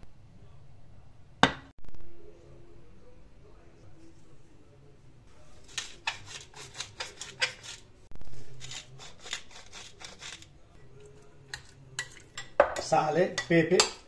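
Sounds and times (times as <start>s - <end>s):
spoon scraping a bowl: 5.4s - 14.0s
pepper mill grinding: 5.6s - 7.8s, 8.5s - 10.5s.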